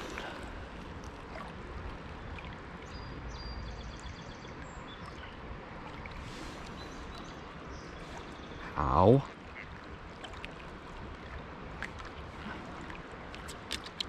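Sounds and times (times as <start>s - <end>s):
river rushing: 0.0s - 2.7s.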